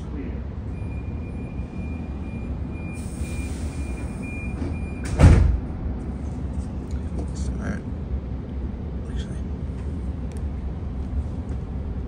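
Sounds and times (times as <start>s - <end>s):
idling train rumble: 0.0s - 12.0s
door warning tone: 0.7s - 5.4s
air hiss: 3.0s - 4.2s
train doors thudding shut: 3.4s - 5.8s.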